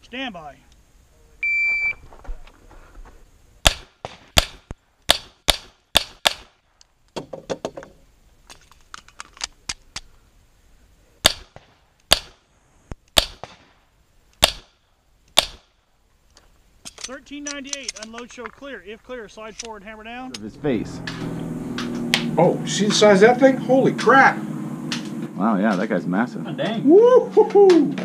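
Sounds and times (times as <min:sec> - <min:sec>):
pistol shots: 0:03.6 - 0:06.6, 0:11.2 - 0:12.4, 0:13.1 - 0:13.8, 0:14.4 - 0:15.8.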